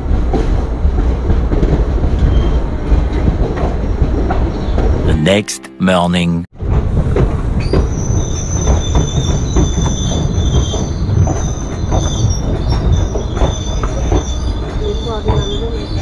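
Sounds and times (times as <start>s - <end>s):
train rumbling: 0.0s - 5.1s, 6.6s - 16.0s
train wheels squealing: 2.2s - 2.8s, 7.6s - 16.0s.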